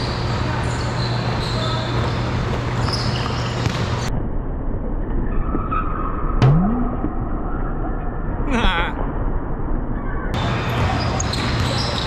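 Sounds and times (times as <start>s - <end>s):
sneakers squeaking on court floor: 0.0s - 4.1s, 10.7s - 12.0s.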